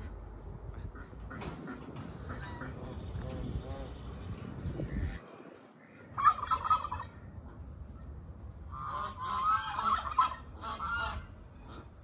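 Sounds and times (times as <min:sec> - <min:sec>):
poultry warbling calls: 0:00.8 - 0:05.2, 0:05.8 - 0:07.2, 0:08.8 - 0:11.9.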